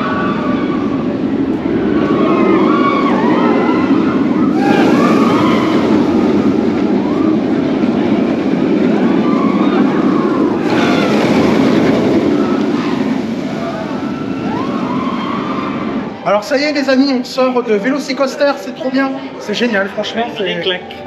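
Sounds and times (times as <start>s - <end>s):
wind and track noise: 0.0s - 17.7s.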